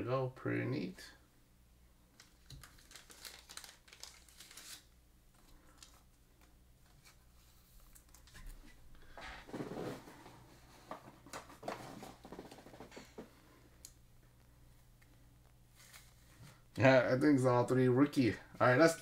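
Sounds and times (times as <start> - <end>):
plastic sleeve crinkling: 2.1 - 8.5.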